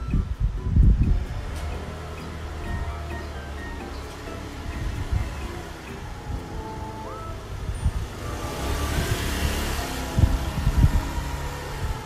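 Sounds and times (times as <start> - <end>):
light melodic music with chimes: 0.0 - 12.0.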